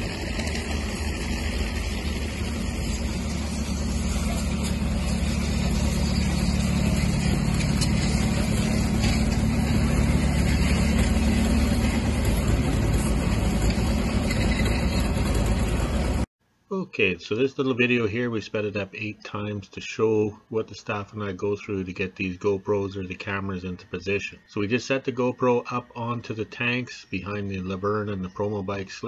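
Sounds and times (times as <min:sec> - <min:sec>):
crawler tractor engine running: 0:00.0 - 0:16.3.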